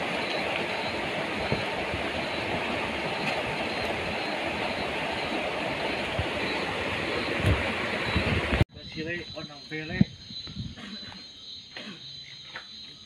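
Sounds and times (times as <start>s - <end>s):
water rushing over rocks: 0.0s - 8.6s.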